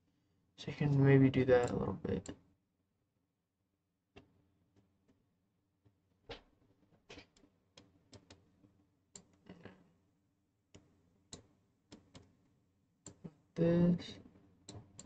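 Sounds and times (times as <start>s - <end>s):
computer mouse clicks: 7.1s - 8.4s.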